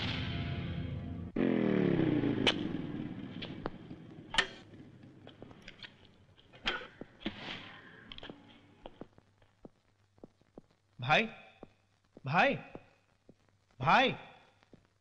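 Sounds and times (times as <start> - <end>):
motorcycle engine winding down: 1.0 - 5.4
sharp clicks and knocks: 3.4 - 7.4.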